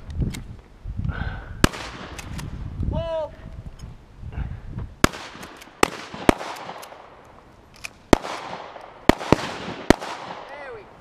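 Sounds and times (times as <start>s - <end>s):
distant gunshots: 5.0s - 7.1s, 8.1s - 10.5s.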